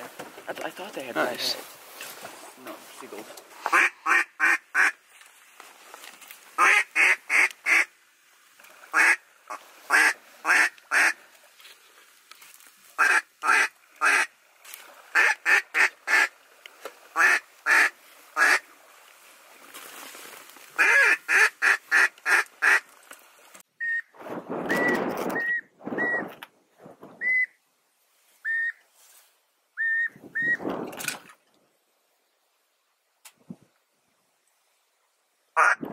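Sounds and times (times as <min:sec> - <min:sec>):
ducks quacking: 0:03.6 - 0:05.0, 0:06.6 - 0:07.9, 0:08.9 - 0:11.2, 0:13.0 - 0:14.3, 0:15.1 - 0:16.3, 0:17.1 - 0:18.6, 0:20.8 - 0:22.8
geese honking: 0:17.2 - 0:18.6, 0:20.8 - 0:22.8
rough rushing noise: 0:24.2 - 0:27.4.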